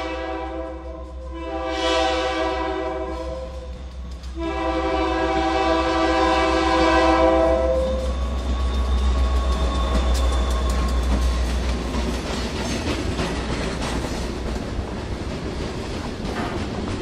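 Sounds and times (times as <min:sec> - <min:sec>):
locomotive air horn blasts: 0:00.0 - 0:08.2
locomotive engine: 0:07.2 - 0:17.0.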